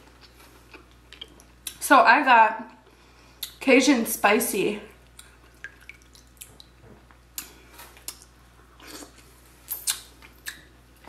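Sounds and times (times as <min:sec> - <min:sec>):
wet eating sounds: 0:04.9 - 0:10.7.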